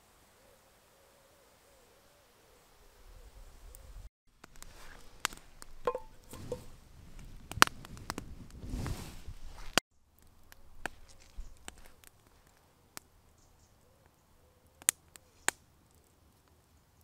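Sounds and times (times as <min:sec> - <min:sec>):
campfire crackling and popping: 0:04.3 - 0:13.4, 0:14.0 - 0:16.7.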